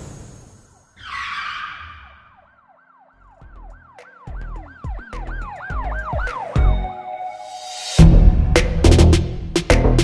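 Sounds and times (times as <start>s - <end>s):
siren rising and falling: 0.8s - 7.0s.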